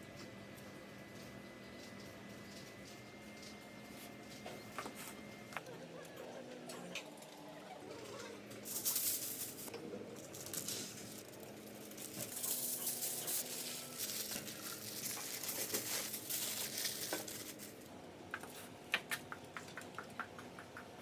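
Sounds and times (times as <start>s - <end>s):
foil and paper crinkling: 8.6s - 17.9s.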